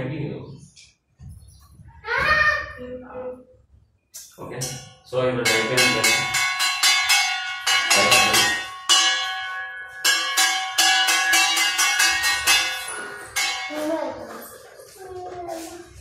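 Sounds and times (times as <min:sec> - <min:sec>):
spoon striking steel plate: 0:04.2 - 0:14.0.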